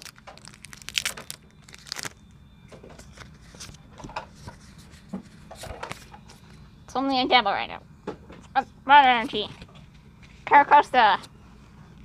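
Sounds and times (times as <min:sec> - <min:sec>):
foil wrapper rustling and tearing: 0:00.0 - 0:02.3.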